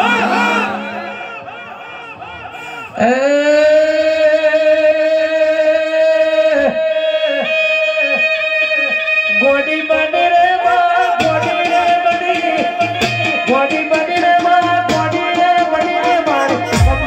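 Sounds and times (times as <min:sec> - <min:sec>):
drum strikes: 0:11.2 - 0:17.0.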